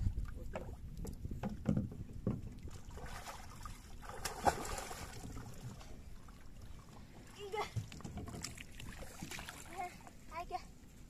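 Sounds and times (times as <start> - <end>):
water splashing and sloshing: 0.0 - 11.0
pole knocking on wooden hull: 0.5 - 2.6, 7.8 - 8.6.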